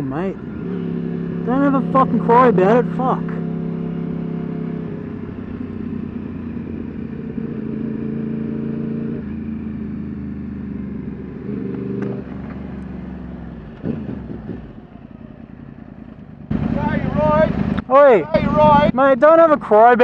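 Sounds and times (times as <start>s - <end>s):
motorcycle engine revving: 0.0s - 20.0s
road and wind noise: 0.0s - 20.0s.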